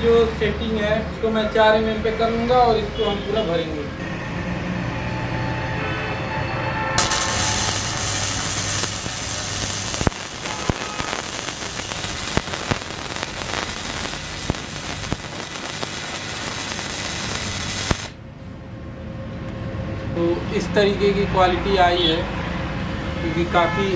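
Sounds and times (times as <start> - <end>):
welding arc crackling and popping: 7.0 - 18.2.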